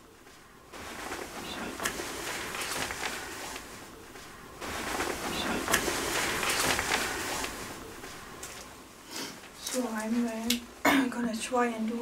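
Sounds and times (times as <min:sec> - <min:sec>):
rustling and clicks: 0:00.2 - 0:08.8.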